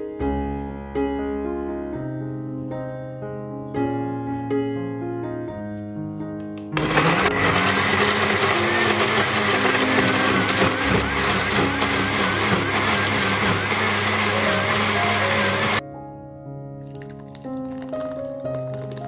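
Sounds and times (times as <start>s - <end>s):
piano background music: 0.0s - 19.0s
blender running: 6.8s - 15.8s.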